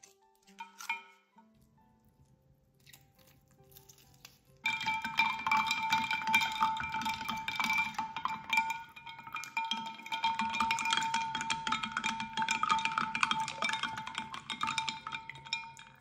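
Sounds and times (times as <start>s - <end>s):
faint soft music: 0.0s - 16.0s
ice cubes clinking in glass pitcher: 4.6s - 16.0s.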